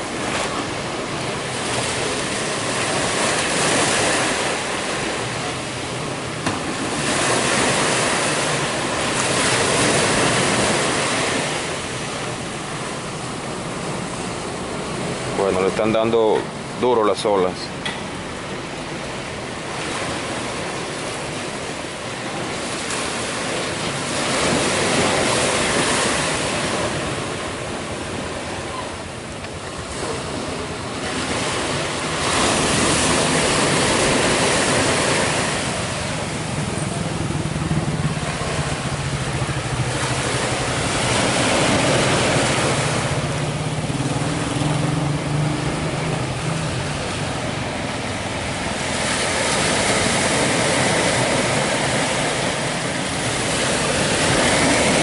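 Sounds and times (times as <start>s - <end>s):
ocean surf breaking: 0.0s - 55.0s.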